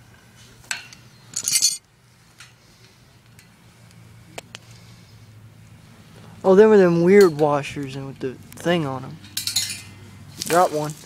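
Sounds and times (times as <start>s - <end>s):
metal hardware ringing clinks: 0.7s - 1.8s, 9.2s - 10.0s.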